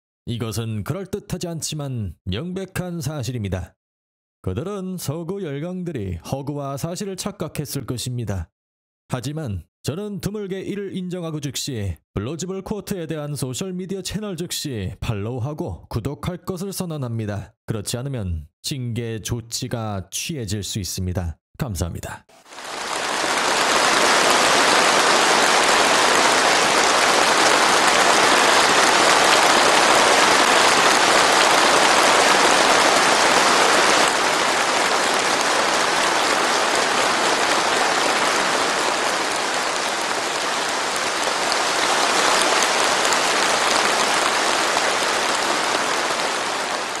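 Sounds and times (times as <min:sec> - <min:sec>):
large crowd applauding: 0:22.5 - 0:47.0.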